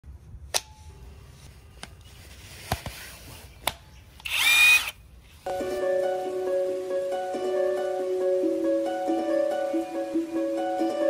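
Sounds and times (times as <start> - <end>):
impact wrench motor whine: 4.2 - 5.0.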